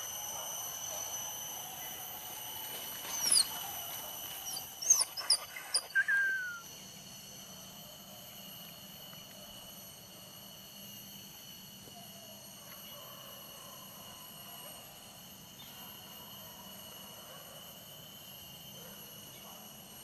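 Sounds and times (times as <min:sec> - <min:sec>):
high insect drone: 0:00.0 - 0:20.0
dog whining: 0:04.5 - 0:06.6.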